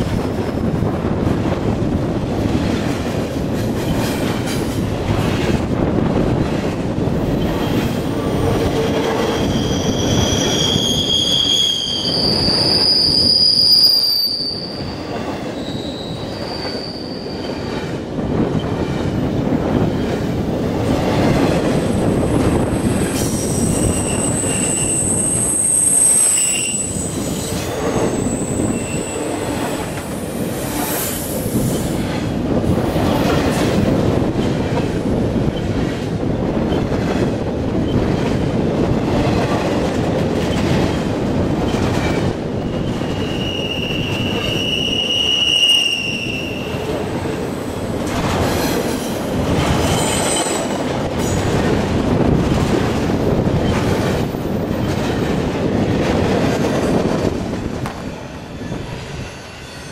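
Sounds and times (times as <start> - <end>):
freight train rumbling past: 0.0 - 59.9
train wheel squeals: 7.4 - 18.0, 22.5 - 32.2, 41.7 - 51.7, 58.4 - 59.9.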